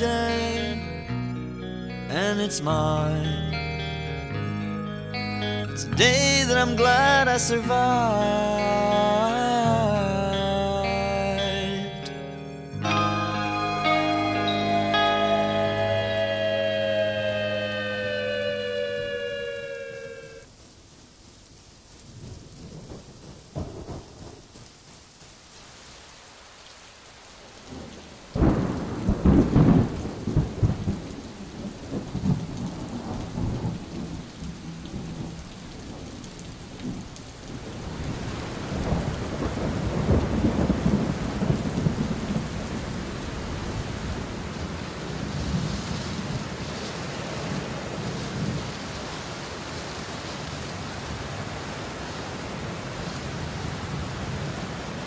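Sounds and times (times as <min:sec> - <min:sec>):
rain hissing: 0:00.0 - 0:55.0
thunder crack and rumble: 0:22.2 - 0:24.5, 0:27.7 - 0:44.4.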